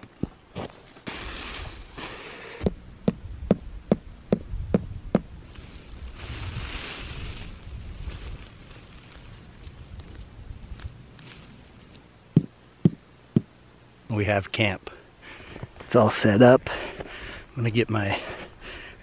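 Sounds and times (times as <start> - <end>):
tent fabric rustling: 0.6 - 2.6, 5.5 - 12.0.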